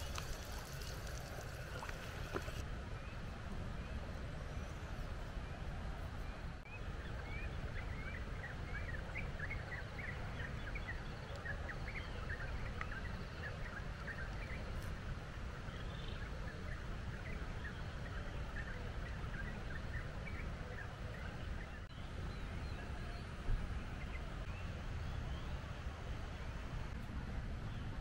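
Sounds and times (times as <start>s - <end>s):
birds chirping: 0.0s - 2.6s.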